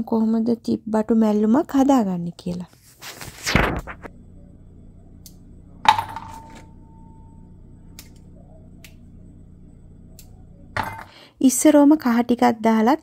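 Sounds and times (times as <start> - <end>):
low hum: 3.4 - 12.9.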